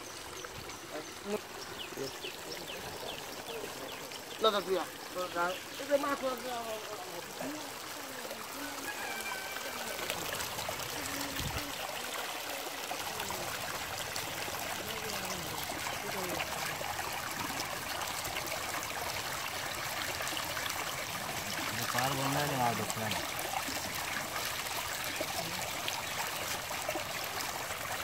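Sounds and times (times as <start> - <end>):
water trickling and splashing: 0.0 - 28.0.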